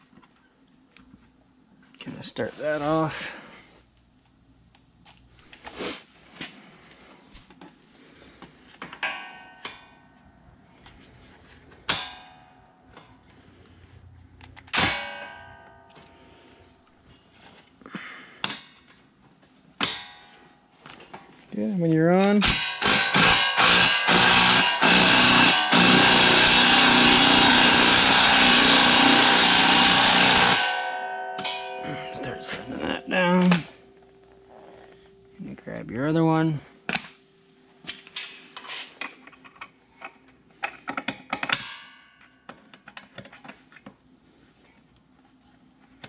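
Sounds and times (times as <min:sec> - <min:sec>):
metal clangs ringing: 0:08.9 - 0:11.1, 0:11.7 - 0:13.9, 0:14.7 - 0:17.3, 0:19.8 - 0:20.8, 0:22.3 - 0:35.6, 0:41.4 - 0:42.5
impact driver running: 0:22.5 - 0:31.0.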